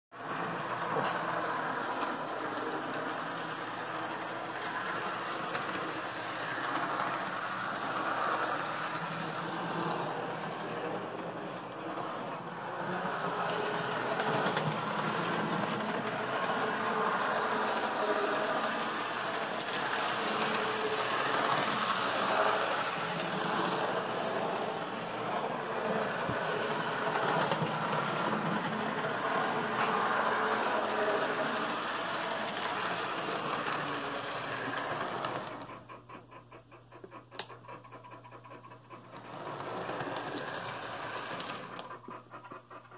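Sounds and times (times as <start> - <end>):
model trains whirring and rattling: 0.2 - 42.9
model locomotive fast ticking: 30.8 - 42.9.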